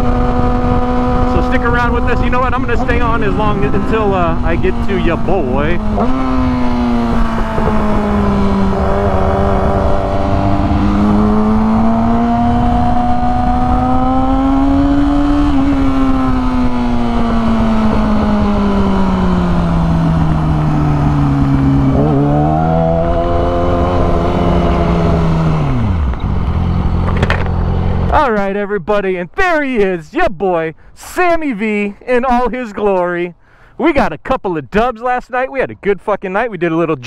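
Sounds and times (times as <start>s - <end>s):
motorcycle engine running: 0.0s - 28.3s
wind noise: 0.0s - 28.3s.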